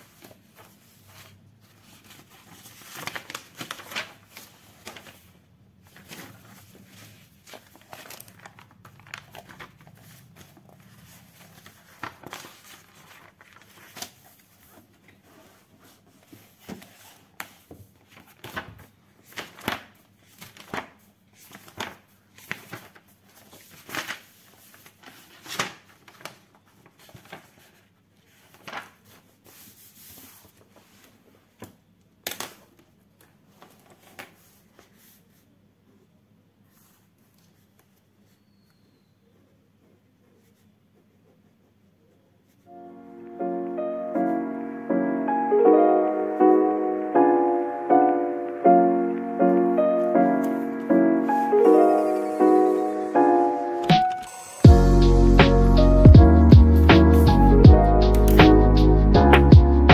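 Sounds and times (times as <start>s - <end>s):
paper rustling: 0.0s - 35.6s, 36.6s - 38.6s, 47.6s - 54.7s.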